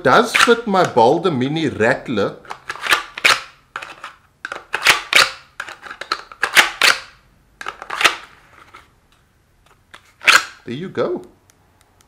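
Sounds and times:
plastic holster clicks and snaps: 9.9s - 10.6s.

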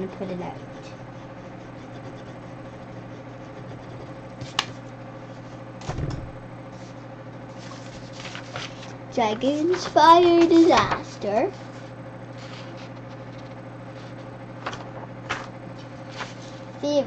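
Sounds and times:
steady low hum: 0.0s - 17.0s
paper rustling: 6.8s - 16.7s.

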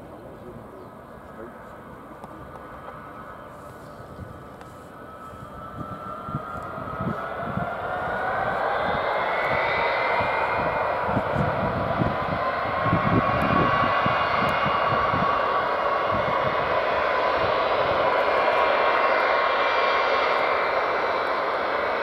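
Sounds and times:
jet engines whining: 0.0s - 22.0s.

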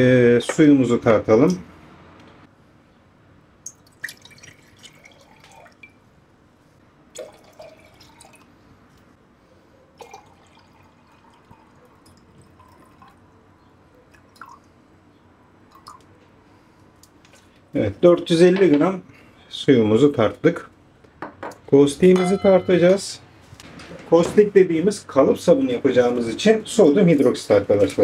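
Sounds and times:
small water splashes: 3.6s - 5.9s
water trickling into a glass jar: 3.6s - 6.0s, 7.2s - 8.6s, 10.0s - 13.3s, 14.1s - 14.8s, 15.7s - 16.1s.

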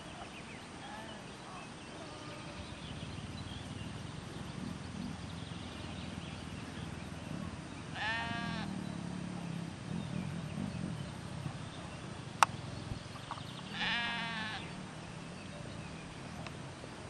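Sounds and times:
sheep bleating: 8.0s - 8.7s, 13.7s - 14.7s.

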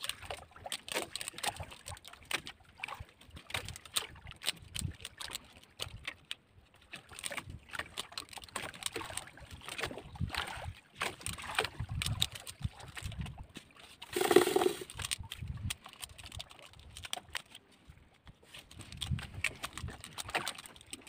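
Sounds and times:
water lapping against boat: 0.0s - 21.0s
fishing line rustling and knocking: 11.0s - 21.0s.

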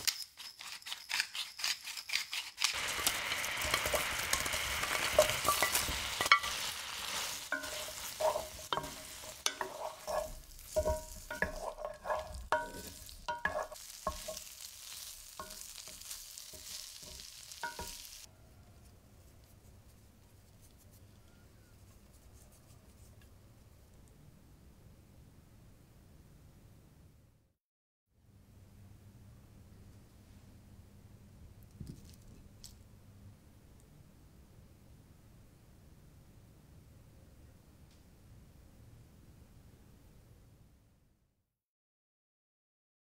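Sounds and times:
sauce sizzling in skillet: 2.6s - 18.3s
wooden spatula knocking on pan: 7.5s - 14.4s.

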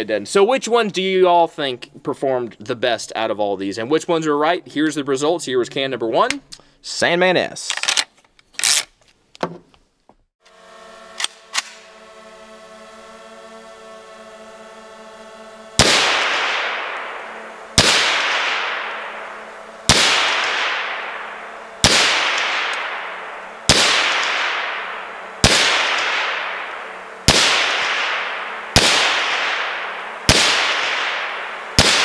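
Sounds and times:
suppressed pistol shots: 15.8s - 32.0s.

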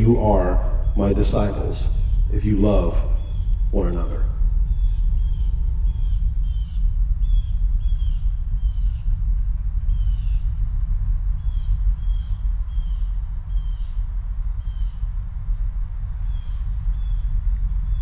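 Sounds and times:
bird chirping: 0.0s - 9.2s, 11.4s - 14.0s, 14.6s - 15.1s, 16.2s - 18.0s
deep rumble: 0.0s - 18.0s.

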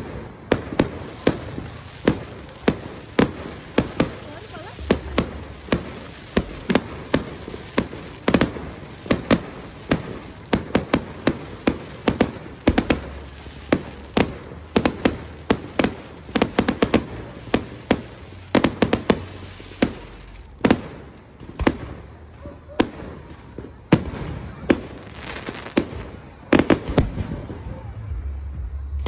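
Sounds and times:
firework shells bursting: 0.0s - 22.2s.

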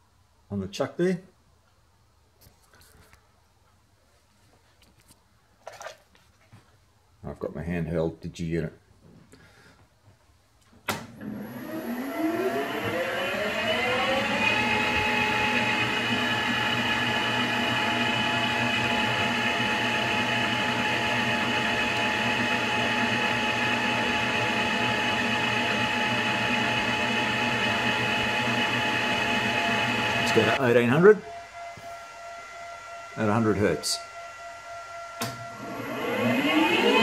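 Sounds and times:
metal lathe motor whining: 11.2s - 37.0s.

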